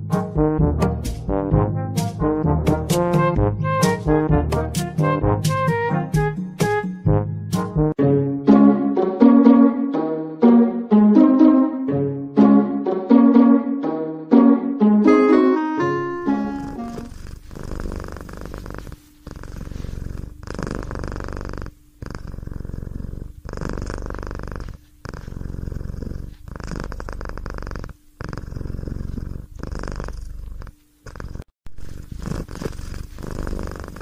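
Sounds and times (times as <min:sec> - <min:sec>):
cat purring: 0:16.3 - 0:34.0.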